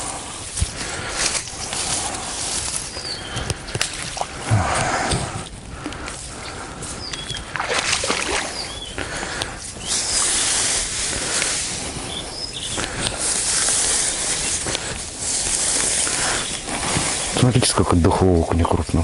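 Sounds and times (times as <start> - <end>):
wet fishing net rustling: 0.0 - 5.4, 7.4 - 8.7, 12.9 - 17.5
water splashing: 3.4 - 5.4, 7.4 - 8.7.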